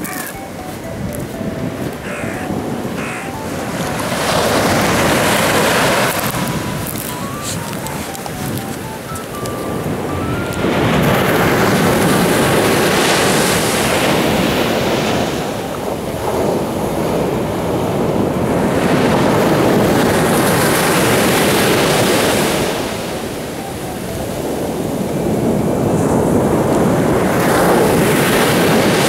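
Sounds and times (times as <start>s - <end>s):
sea surf breaking on beach: 0.0s - 29.0s.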